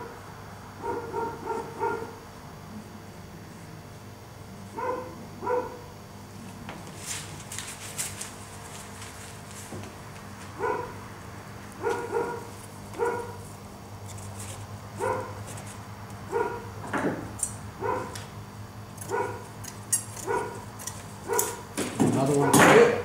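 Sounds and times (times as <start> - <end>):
dog barking: 0.8 - 2.2, 4.7 - 5.9, 10.6 - 11.0, 11.8 - 13.4, 15.0 - 15.4, 16.3 - 16.7, 17.8 - 18.2, 19.1 - 19.5, 20.2 - 20.6, 21.2 - 21.6, 22.4 - 23.0.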